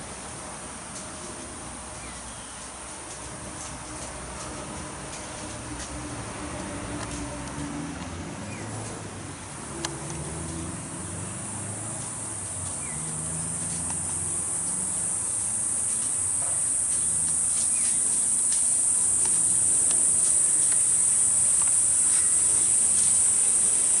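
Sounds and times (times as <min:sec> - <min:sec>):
high-pitched insect chorus: 0:09.6 - 0:24.0.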